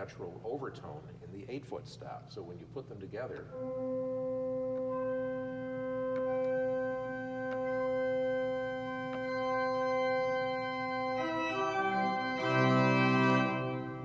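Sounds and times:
pipe organ playing: 0:03.4 - 0:14.0.

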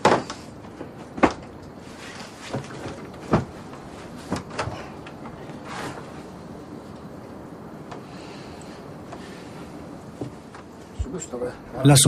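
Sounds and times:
wooden knocks and thuds: 0:00.0 - 0:06.1, 0:10.1 - 0:10.7.

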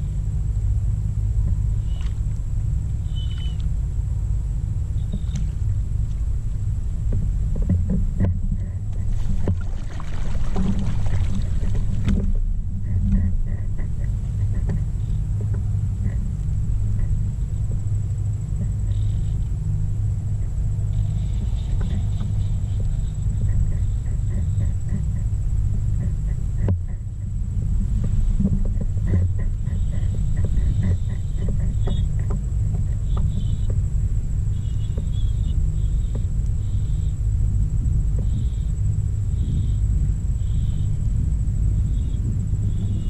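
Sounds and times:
faint high camera whine: 0:00.0 - 0:43.0
wind buffeting microphone: 0:00.0 - 0:43.0
water splashing: 0:08.8 - 0:12.8.

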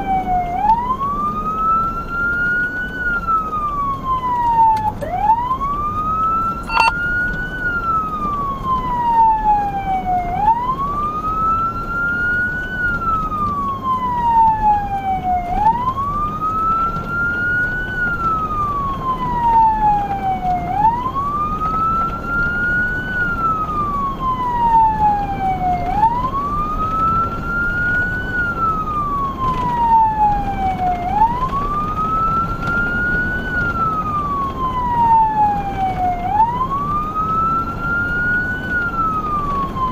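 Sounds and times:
emergency siren wailing: 0:00.0 - 0:39.9
engine and road rumble: 0:00.0 - 0:39.9
short click: 0:06.7 - 0:06.9.

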